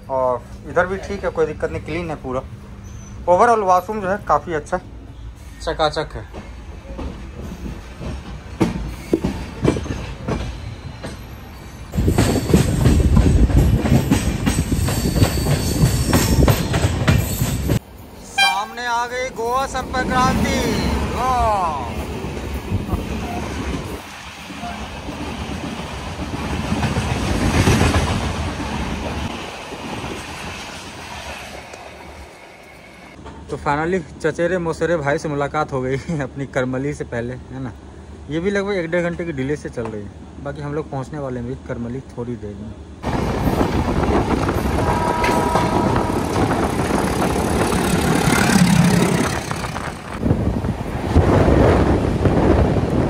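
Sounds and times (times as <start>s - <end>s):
train passing close: 0.0s - 34.2s, 42.7s - 53.0s
diesel locomotive engine hum: 42.7s - 53.0s.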